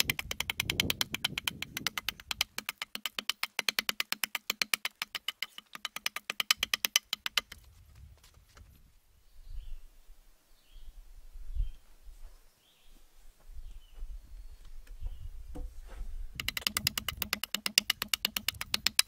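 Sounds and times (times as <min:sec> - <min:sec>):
hatchet chopping log: 0:00.0 - 0:07.6, 0:16.4 - 0:19.0.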